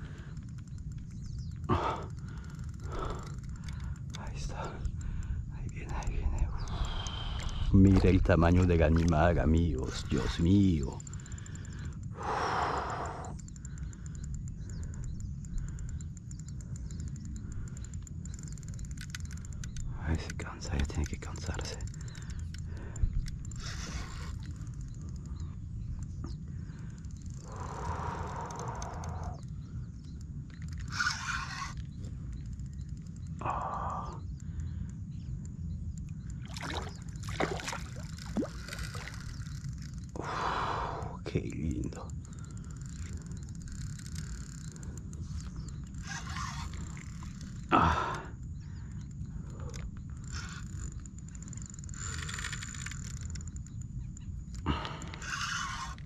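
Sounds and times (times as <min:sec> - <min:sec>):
wind rumble on microphone: 0:00.0 - 0:56.0
fish splashing in water: 0:36.4 - 0:39.4.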